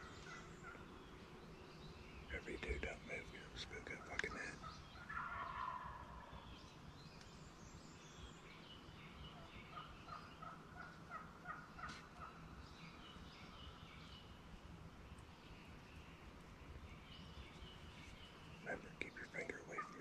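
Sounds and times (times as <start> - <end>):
short quiet bird calls: 2.2 - 6.5, 9.3 - 12.4, 16.7 - 20.0
turkey gobbling: 3.8 - 6.4, 9.4 - 12.4, 19.4 - 20.0.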